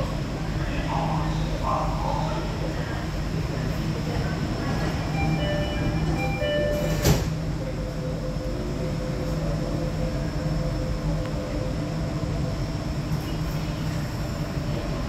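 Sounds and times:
door-closing chime: 5.3s - 7.3s.

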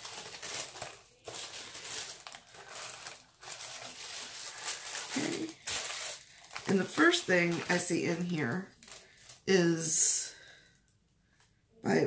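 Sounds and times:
paper crinkling and rustling: 0.0s - 9.5s.

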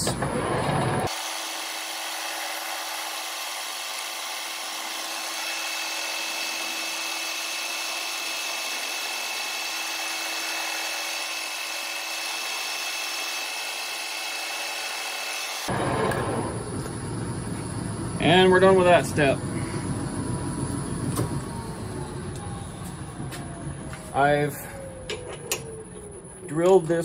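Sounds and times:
lathe drilling metal: 0.0s - 17.2s.

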